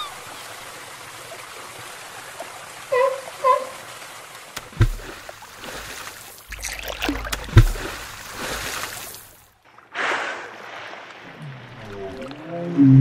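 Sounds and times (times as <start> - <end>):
water splashing and rushing: 0.0 - 13.0
whale exhaling through blowhole: 9.9 - 11.6.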